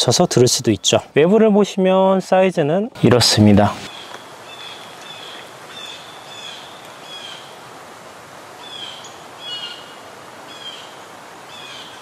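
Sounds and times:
steady background hiss: 0:00.0 - 0:12.0
small birds chirping: 0:03.8 - 0:07.7, 0:08.6 - 0:12.0.

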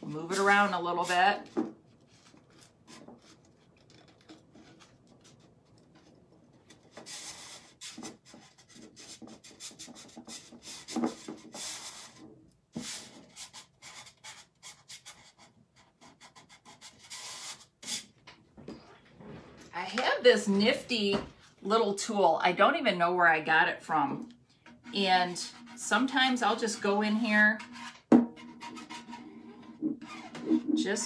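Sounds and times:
hands rubbing stencil: 0:06.7 - 0:12.2, 0:28.6 - 0:31.0.

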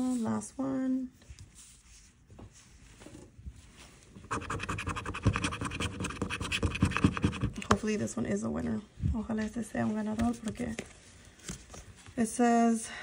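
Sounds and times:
coin scratching lottery ticket: 0:04.2 - 0:07.6.

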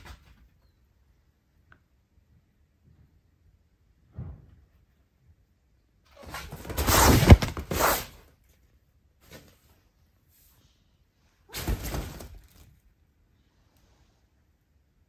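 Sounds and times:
fabric cat tunnel rustling: 0:06.1 - 0:08.2.

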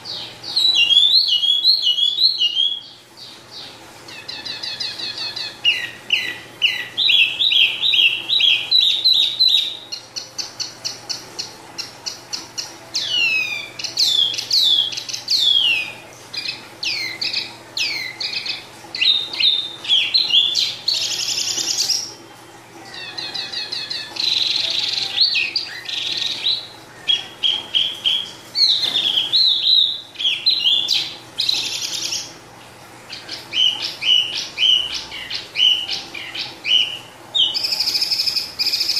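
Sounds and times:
songbird singing: 0:00.0 - 0:22.2, 0:33.1 - 0:38.9.

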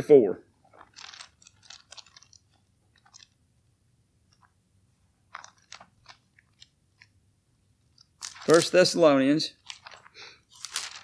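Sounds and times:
thin pages rustling: 0:00.6 - 0:03.4, 0:05.3 - 0:07.1, 0:08.0 - 0:11.0.

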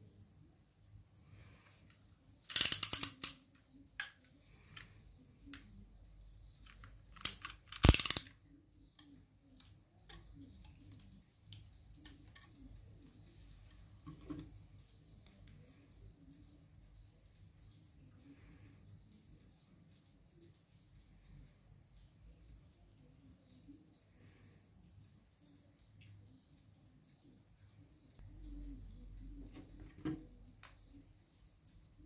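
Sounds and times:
utility knife blade ratchet clicks: 0:02.5 - 0:03.4, 0:07.2 - 0:08.3
plastic handling clicks: 0:02.5 - 0:05.8, 0:06.6 - 0:08.4.

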